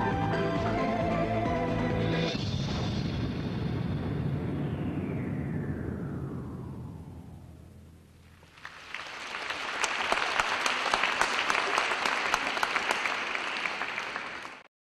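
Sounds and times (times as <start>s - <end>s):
audience applauding: 8.4s - 14.7s.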